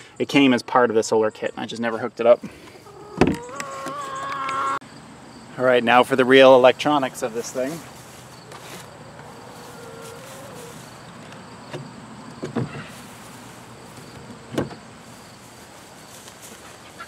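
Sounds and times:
faint insect buzz: 0:07.5 - 0:16.8.

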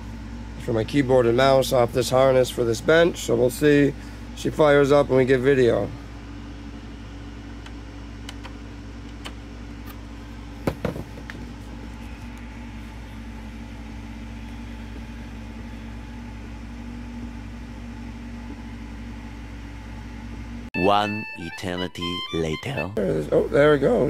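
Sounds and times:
cooling fans droning: 0:00.0 - 0:24.0
loud knock: 0:10.6 - 0:11.3.

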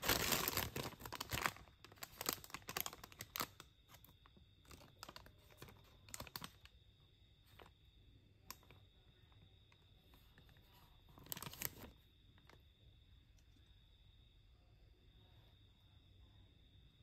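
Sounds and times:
plastic wrapper crinkling: 0:00.0 - 0:06.7, 0:08.4 - 0:08.8, 0:10.1 - 0:12.6.

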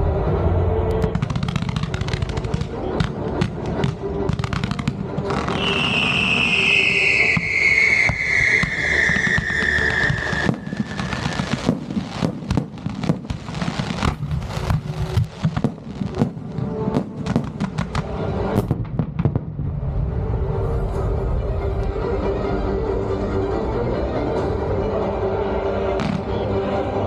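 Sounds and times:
fireworks popping and crackling: 0:01.0 - 0:19.8
falling firework whistle: 0:05.4 - 0:12.3.

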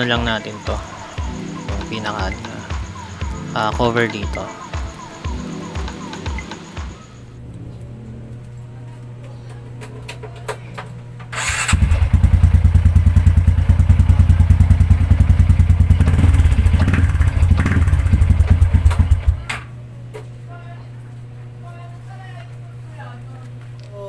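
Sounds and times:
motorcycle engine idling: 0:11.3 - 0:19.5.

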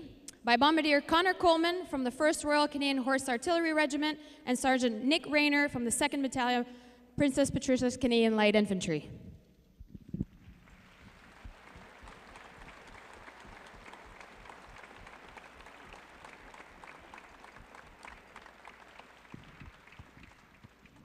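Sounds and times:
faint audience applause: 0:10.4 - 0:21.0.

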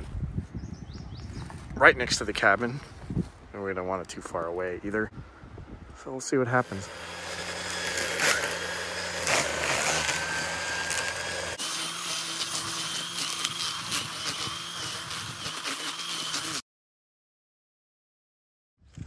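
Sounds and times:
power tool motor running: 0:06.6 - 0:16.6.

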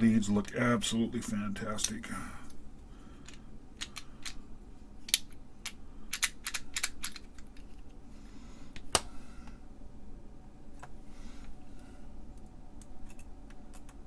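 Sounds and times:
plastic parts clicking and tapping: 0:05.1 - 0:07.9.

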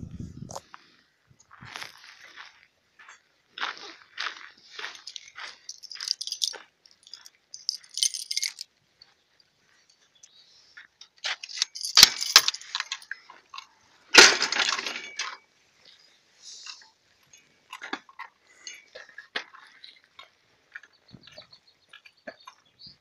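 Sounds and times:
bicycle rattling and knocking: 0:05.0 - 0:08.6.

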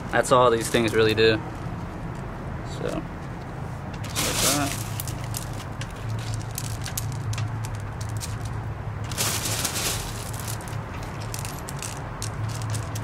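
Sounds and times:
clay pebbles clicking in a plastic pot: 0:04.0 - 0:13.0
rustle: 0:04.0 - 0:13.0.

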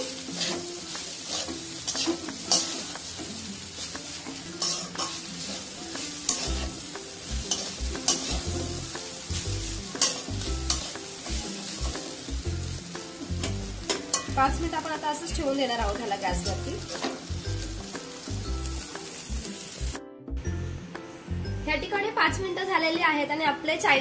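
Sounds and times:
food sizzling: 0:00.0 - 0:20.0
metal spatula scraping pan: 0:00.2 - 0:03.0, 0:04.6 - 0:06.8, 0:07.4 - 0:08.8, 0:09.9 - 0:10.9.

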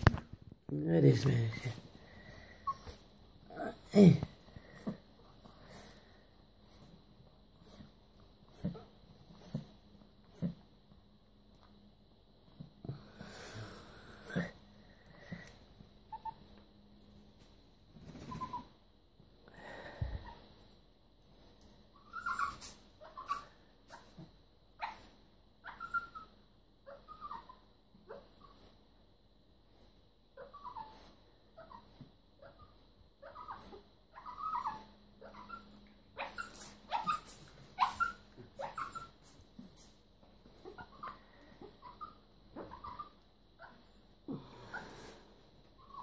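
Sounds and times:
small dog whimpering: 0:02.6 - 0:04.2, 0:16.1 - 0:16.6, 0:18.2 - 0:18.8, 0:22.0 - 0:28.6, 0:30.4 - 0:39.8, 0:40.6 - 0:45.2, 0:45.8 - 0:46.0.

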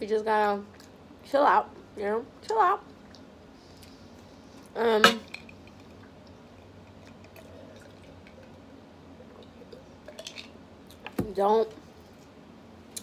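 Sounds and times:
woman's voice: 0:00.0 - 0:00.7, 0:01.3 - 0:02.9, 0:04.7 - 0:05.3, 0:11.2 - 0:11.8
person sipping water: 0:06.0 - 0:10.2.

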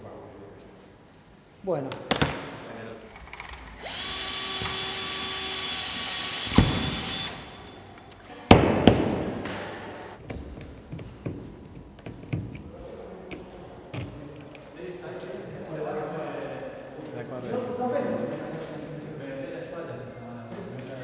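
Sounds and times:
power tool motor whining: 0:03.8 - 0:07.8.

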